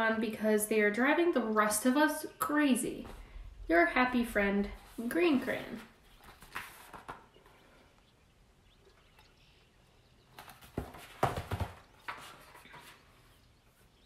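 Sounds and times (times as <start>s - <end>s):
paper pages turning: 5.7s - 7.5s.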